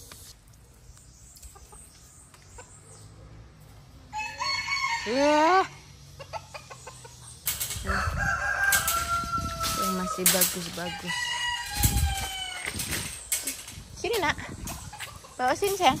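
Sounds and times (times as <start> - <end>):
rooster crowing: 4.1 - 5.4, 7.8 - 10.2, 10.8 - 12.7.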